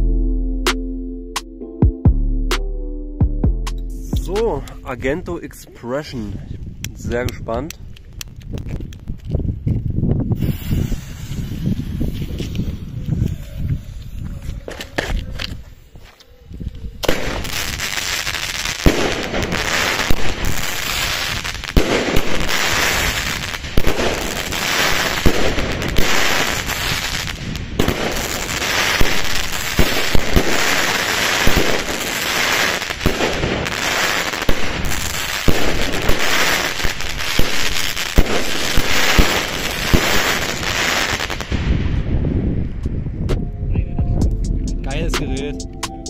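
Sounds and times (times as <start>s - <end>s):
firework crackling: 10.3s - 13.0s, 17.0s - 41.8s.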